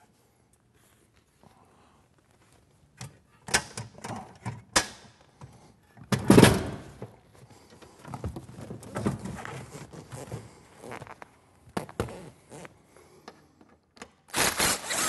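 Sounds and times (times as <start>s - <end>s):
rustling and shuffling: 0.0s - 3.3s, 6.8s - 12.8s.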